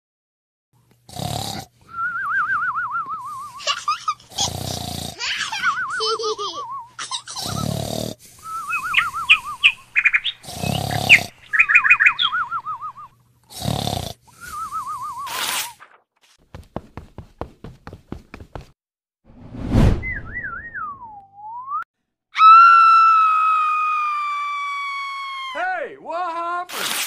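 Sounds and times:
cartoon rasping snore: 0:01.1 - 0:01.7, 0:04.3 - 0:05.3, 0:07.4 - 0:08.2, 0:10.4 - 0:11.3, 0:13.5 - 0:14.3
wavering whistle: 0:01.9 - 0:03.6, 0:08.4 - 0:09.7, 0:12.2 - 0:13.1, 0:14.4 - 0:15.6, 0:20.0 - 0:21.8.

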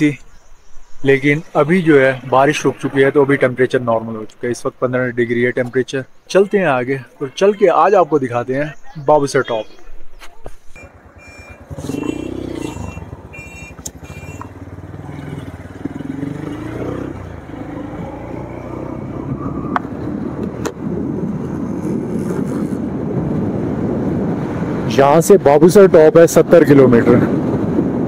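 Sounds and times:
short high beeps: 0:10.8 - 0:14.5
motorcycle engine accelerating: 0:10.8 - 0:24.9.

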